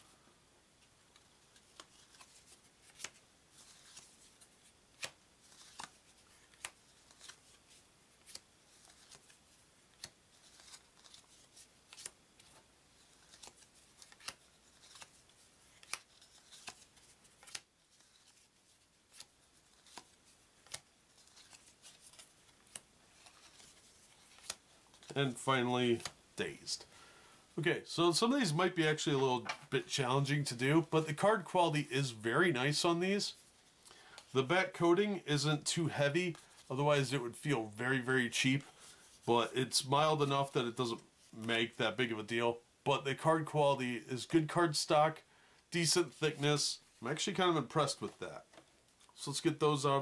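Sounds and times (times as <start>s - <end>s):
cards snapping and sliding: 1.5s - 18.5s, 19.1s - 25.2s.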